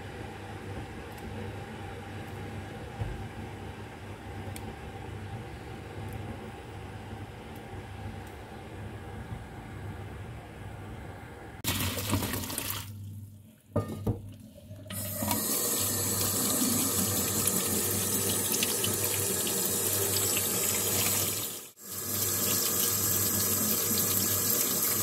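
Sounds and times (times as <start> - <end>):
water running into a sink: 11.6 - 13.1, 14.8 - 25.0.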